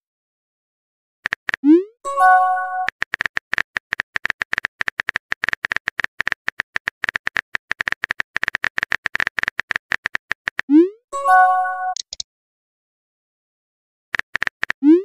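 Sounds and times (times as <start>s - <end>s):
keyboard typing clicks: 1.2s - 10.7s, 11.8s - 12.2s, 14.2s - 15.0s.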